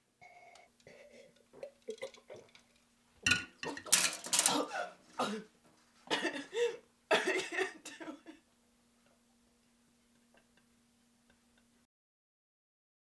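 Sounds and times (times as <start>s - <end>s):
faint steady hum: 0.0s - 11.9s
woman coughing hard: 4.4s - 5.5s, 6.1s - 8.4s.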